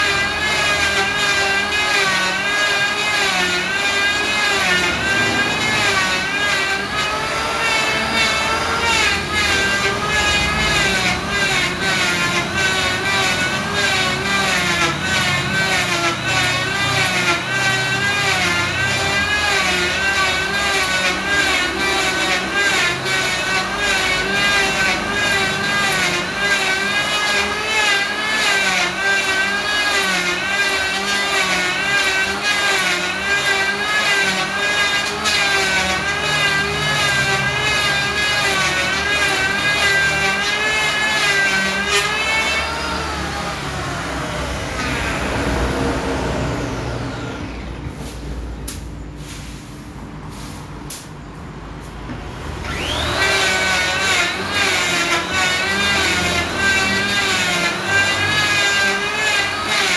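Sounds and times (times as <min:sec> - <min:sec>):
electric hand planer whining: 0:00.0 - 0:48.1, 0:52.5 - 0:59.9.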